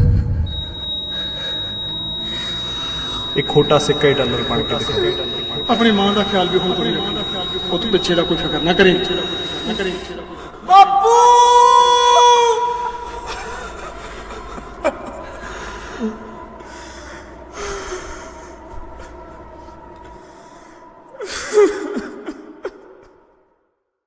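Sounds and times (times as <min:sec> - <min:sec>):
faint steady tone: 0:00.5 - 0:10.7
people sobbing: 0:00.5 - 0:23.2.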